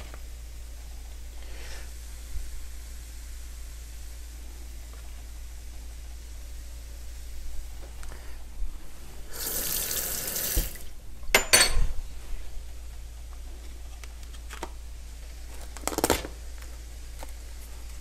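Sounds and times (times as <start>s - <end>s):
kitchen tap running: 9.3s - 11.5s.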